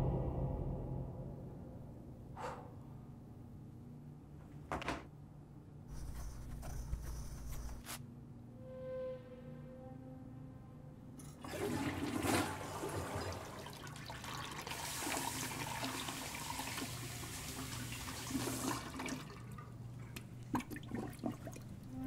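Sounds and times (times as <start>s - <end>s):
toilet flushing: 11.3s - 19.8s, 20.5s - 21.9s.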